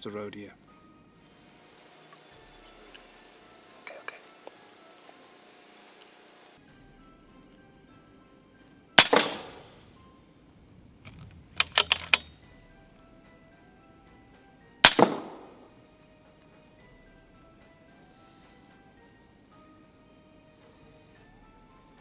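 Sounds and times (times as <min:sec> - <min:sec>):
air rifle shots: 0:09.0 - 0:09.8, 0:11.1 - 0:12.4, 0:14.8 - 0:15.7
quick clicks: 0:11.0 - 0:12.4.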